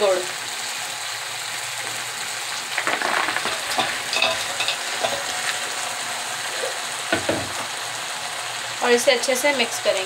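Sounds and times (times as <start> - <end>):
food sizzling in oil: 0.0 - 10.0
metal spatula scraping pot: 2.8 - 5.6.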